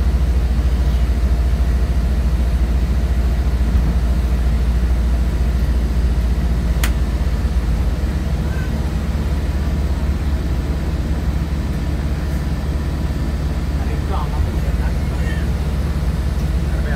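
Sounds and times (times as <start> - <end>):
vehicle engine rumbling: 0.0 - 16.9
sharp click: 6.8 - 7.0.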